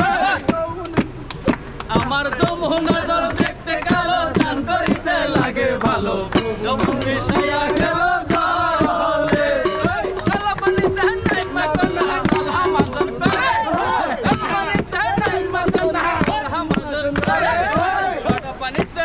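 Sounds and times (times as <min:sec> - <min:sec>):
men singing together: 0:00.0 - 0:01.2, 0:01.9 - 0:19.0
rhythmic hand-clapping: 0:00.0 - 0:19.0
steel bowl beaten as drum: 0:04.3 - 0:17.3.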